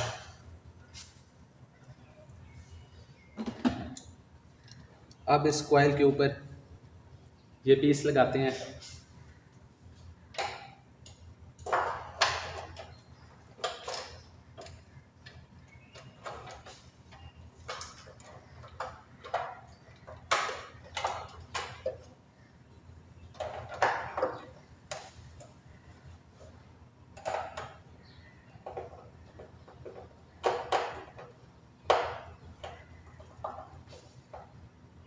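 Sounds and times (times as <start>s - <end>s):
hard plastic parts clicking: 10.3s - 22.2s, 23.2s - 34.7s.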